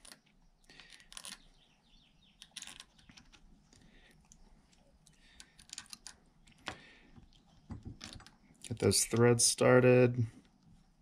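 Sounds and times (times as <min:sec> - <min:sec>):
small metal parts clicking: 0:00.0 - 0:01.5, 0:02.4 - 0:04.4, 0:05.0 - 0:06.8.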